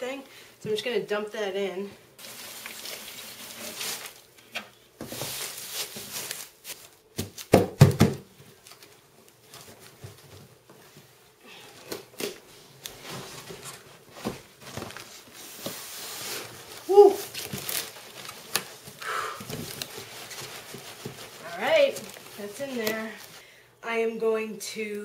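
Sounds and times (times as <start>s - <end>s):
cardboard and paper scraping: 2.2s - 4.2s, 13.0s - 23.4s
shredded paper pouring and rustling: 2.2s - 4.3s, 5.0s - 6.9s, 14.6s - 23.4s.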